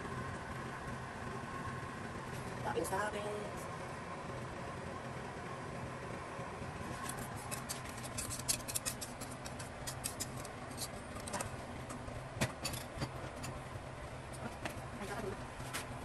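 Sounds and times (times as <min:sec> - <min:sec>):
steady low hum: 0:00.0 - 0:16.0
metal pot clicks and scrapes: 0:07.0 - 0:13.6.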